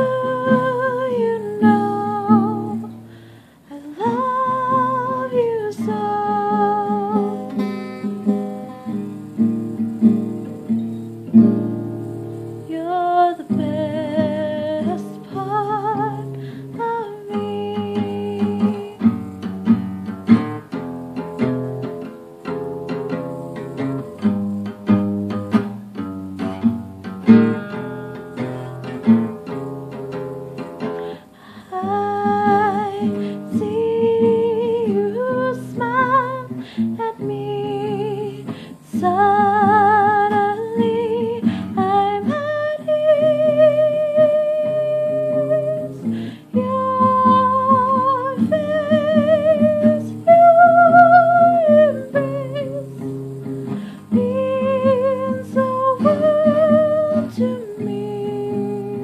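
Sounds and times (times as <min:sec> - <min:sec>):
woman singing with vibrato: 0:00.0 - 0:10.2, 0:12.6 - 0:19.9, 0:27.4 - 0:59.0
guitar strumming: 0:00.0 - 0:59.0.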